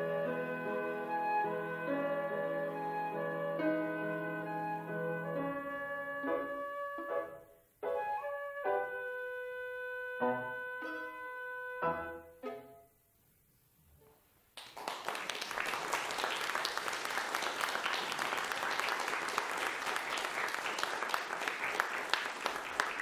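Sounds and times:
flute violin and piano trio: 0.0 - 12.7
audience applauding: 14.6 - 23.0.

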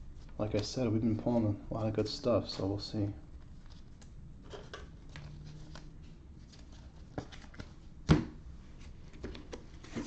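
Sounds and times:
cards rustling and ticking: 0.2 - 7.9.

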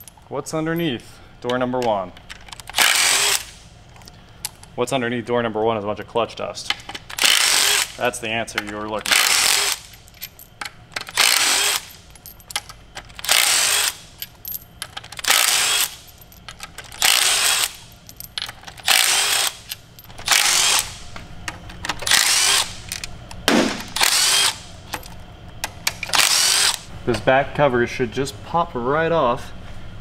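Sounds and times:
bit and bolts clicking: 1.4 - 3.4, 8.5 - 23.4
impact driver running: 2.7 - 3.5, 7.1 - 8.0, 9.0 - 9.9, 11.0 - 12.0, 13.1 - 14.0, 15.2 - 16.0, 16.9 - 17.8, 18.8 - 21.0, 22.0 - 24.6, 26.1 - 26.9.

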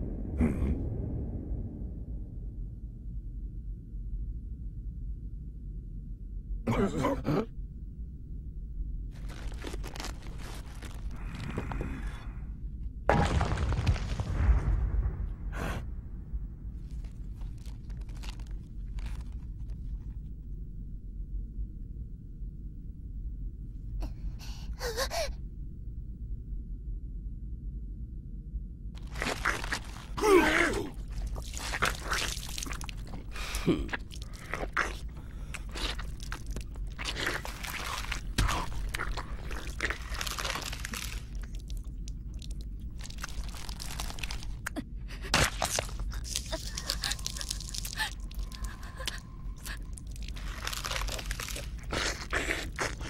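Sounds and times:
low steady rumble: 0.0 - 6.8, 7.5 - 13.1, 14.0 - 53.0
crunching biting and tearing: 9.2 - 12.1, 16.8 - 20.2, 29.0 - 53.0
crash: 13.1 - 17.3.

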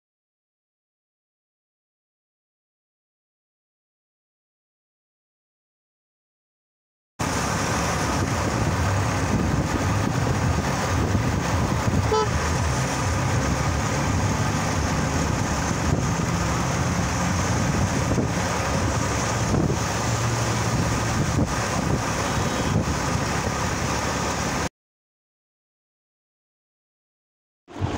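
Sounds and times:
road noise from moving vehicle: 7.2 - 24.7, 27.7 - 27.9
car horn toot: 12.0 - 12.5, 22.2 - 22.9.

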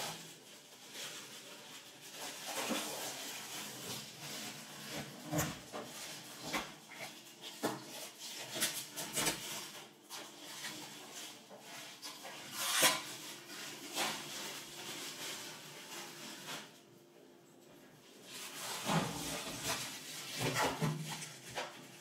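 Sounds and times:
hands rubbing plastic sheet: 0.0 - 16.8
plastic film crinkling: 0.1 - 16.8.

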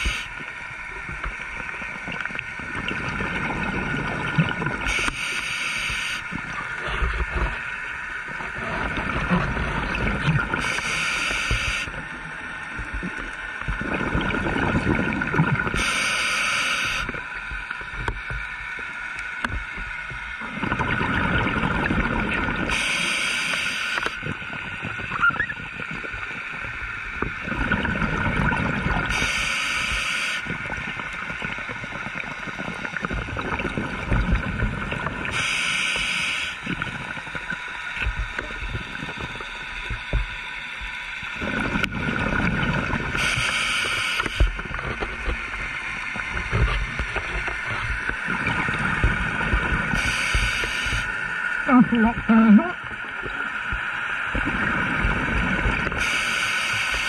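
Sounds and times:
bubbles rushing underwater: 1.1 - 5.1, 6.3 - 10.8, 12.8 - 15.9, 20.4 - 22.8, 24.2 - 29.2, 30.5 - 35.4, 41.4 - 43.6, 44.5 - 56.2
diver breathing through regulator: 10.6 - 11.9, 35.3 - 36.6, 43.2 - 44.6.

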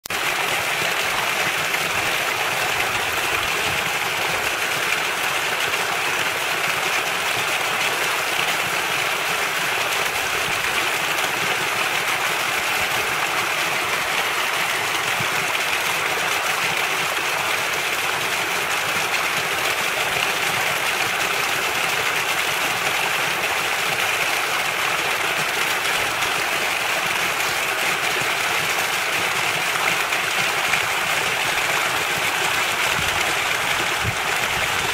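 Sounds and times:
water splashing into pool: 0.1 - 34.9.

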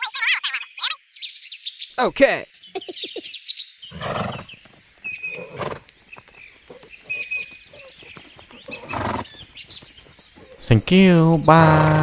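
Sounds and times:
faint bird chirping: 0.0 - 12.0.

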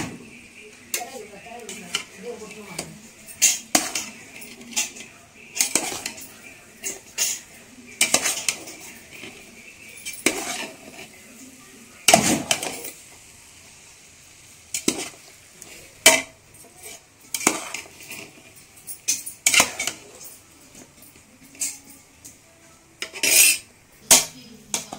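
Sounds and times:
metal spatula scraping a pot: 3.4 - 11.3, 14.7 - 20.3, 23.0 - 24.9.

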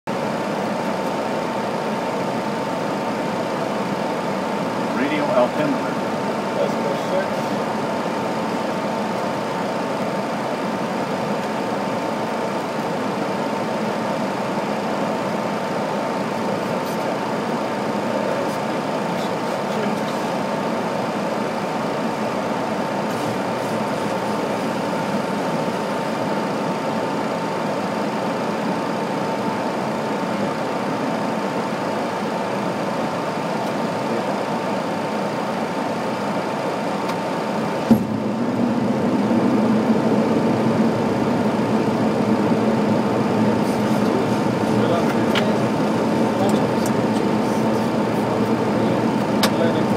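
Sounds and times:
airliner cockpit airflow and engines: 0.1 - 49.9
steady high hum: 0.1 - 49.9.

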